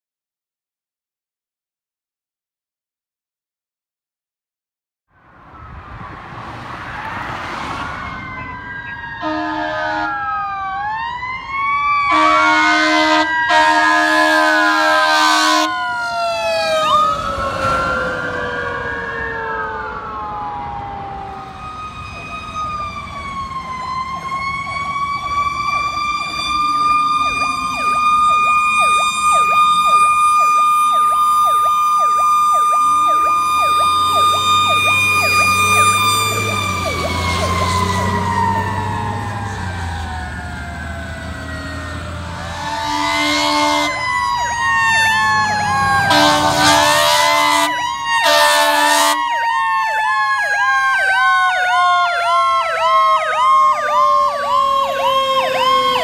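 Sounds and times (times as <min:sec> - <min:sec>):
fire engine sirens wailing: 0:05.2 - 0:56.0
siren steady high note: 0:05.3 - 0:56.0
truck air horn blasts: 0:09.2 - 0:10.2, 0:12.1 - 0:15.8, 0:42.3 - 0:44.1, 0:46.0 - 0:49.2.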